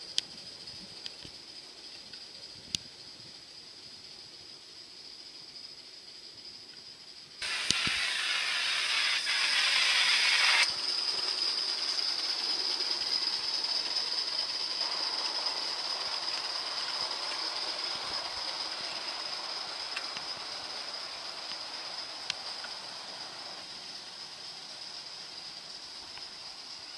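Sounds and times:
model locomotive steam hiss: 0:00.0 - 0:26.9
locomotive running noise: 0:07.4 - 0:22.8.

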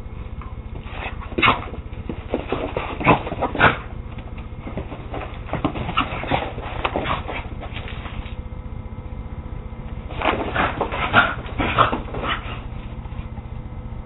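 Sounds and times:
dogs yipping and barking: 0:05.5 - 0:07.8, 0:10.4 - 0:12.7.

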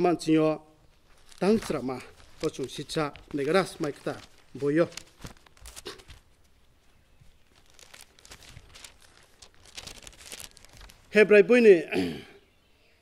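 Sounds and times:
thin pages rustling: 0:00.8 - 0:11.2.

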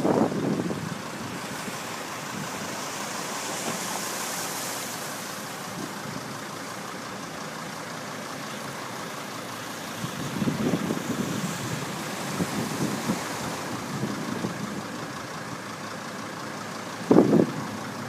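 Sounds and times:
low car engine: 0:00.0 - 0:18.0
tyres swishing through water: 0:00.0 - 0:18.0.

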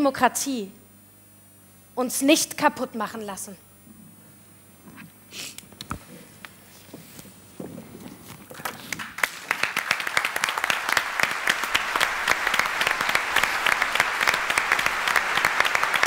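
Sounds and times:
audience applauding: 0:08.5 - 0:16.0.

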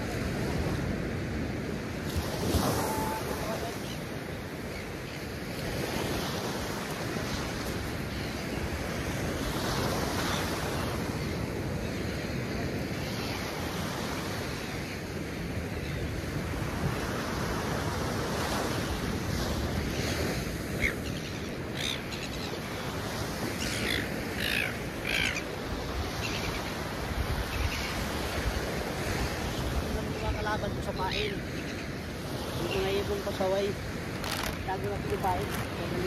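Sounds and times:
surf washing on beach: 0:00.0 - 0:36.0
wind: 0:00.0 - 0:36.0
short bird calls: 0:20.8 - 0:22.7, 0:23.6 - 0:25.5.

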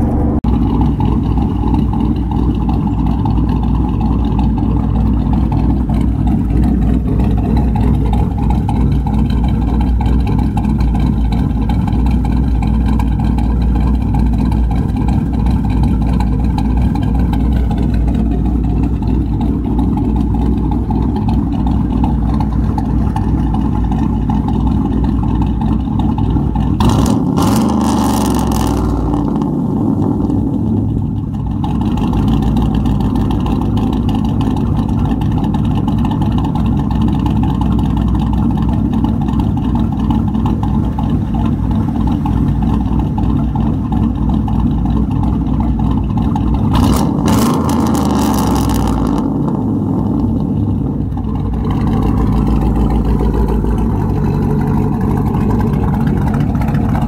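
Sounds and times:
engine revving: 0:00.0 - 0:03.6, 0:26.8 - 0:31.1, 0:46.6 - 0:57.0
truck engine idling with choppy lope: 0:00.0 - 0:57.0.

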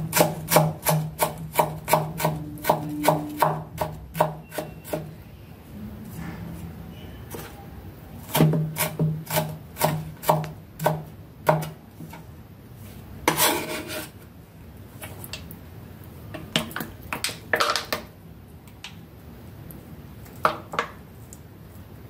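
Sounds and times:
knife chopping on wooden board: 0:00.1 - 0:05.0, 0:08.3 - 0:11.8
knife scraping board: 0:08.3 - 0:10.4, 0:13.2 - 0:14.2.

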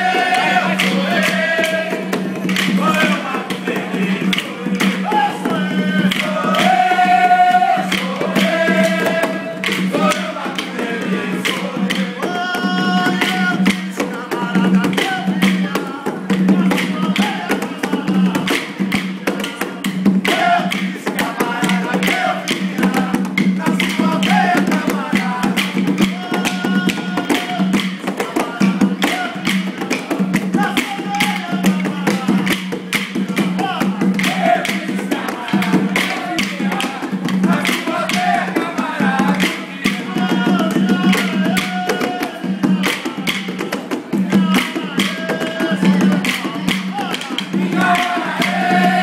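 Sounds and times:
group singing call and response: 0:00.0 - 0:49.0
percussion: 0:00.0 - 0:49.0.

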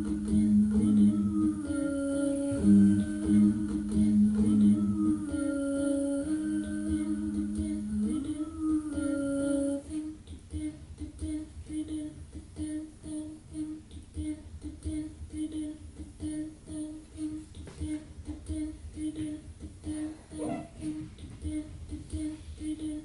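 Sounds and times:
person humming: 0:19.8 - 0:21.0.

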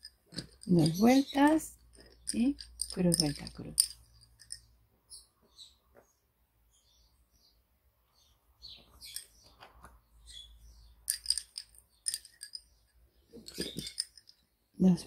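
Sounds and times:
lace bobbins clicking: 0:00.0 - 0:04.6, 0:11.1 - 0:12.6, 0:13.4 - 0:14.4.

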